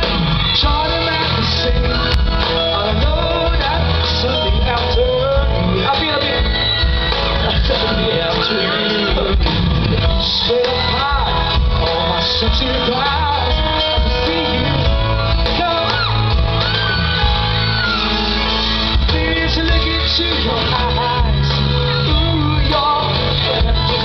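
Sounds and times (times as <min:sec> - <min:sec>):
bass: 0:00.0 - 0:24.0
electric guitar: 0:00.0 - 0:24.0
keyboard: 0:00.0 - 0:24.0
person singing lead vocal: 0:00.0 - 0:24.0.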